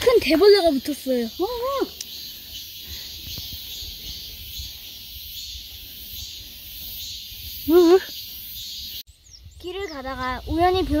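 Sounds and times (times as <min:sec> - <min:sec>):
insect chorus: 0:00.0 - 0:10.9
wind rumble on microphone: 0:08.7 - 0:11.0.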